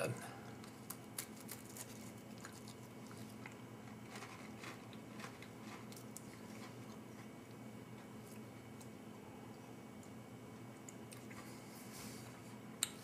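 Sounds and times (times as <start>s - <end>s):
chewing dry cracker: 0.4s - 9.0s, 10.0s - 11.6s.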